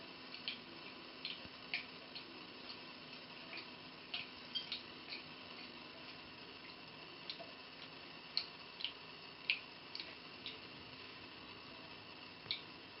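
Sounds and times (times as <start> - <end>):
faint steady hiss: 0.0 - 13.0
water dripping into sink: 0.3 - 2.8, 3.5 - 5.7, 6.6 - 10.7, 12.4 - 12.8.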